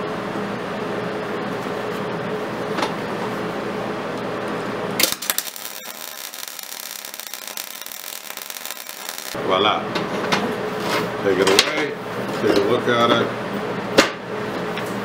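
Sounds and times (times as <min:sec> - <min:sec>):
welder crackling sizzle: 0:04.9 - 0:09.4.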